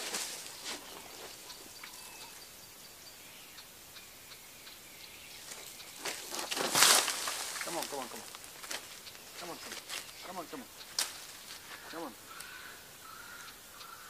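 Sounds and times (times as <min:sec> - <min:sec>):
rustling: 0:00.0 - 0:02.0, 0:05.4 - 0:12.6
small ticks: 0:03.4 - 0:14.0.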